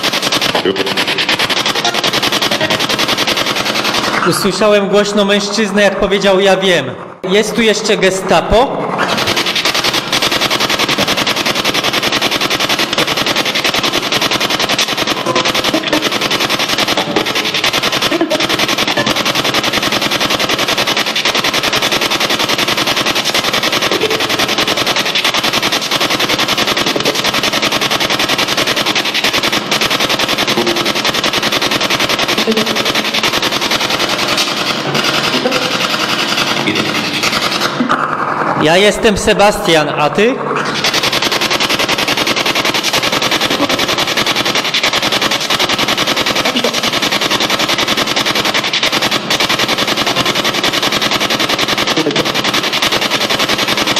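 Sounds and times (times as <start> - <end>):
snatches of radio: 0.0 - 2.9, 3.9 - 10.1, 15.2 - 16.2
chopped radio static: 0.0 - 53.9.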